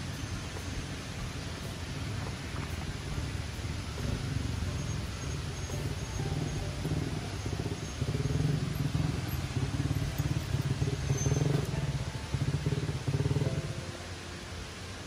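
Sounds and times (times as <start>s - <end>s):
engine running with rough pulse: 0.0s - 15.0s.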